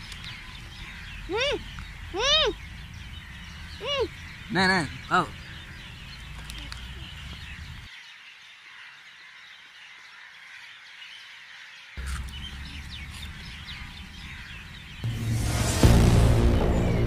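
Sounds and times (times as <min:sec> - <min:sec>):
birds chirping: 0:00.0 - 0:17.0
low rumble: 0:13.9 - 0:17.0
loud dramatic music: 0:15.0 - 0:17.0.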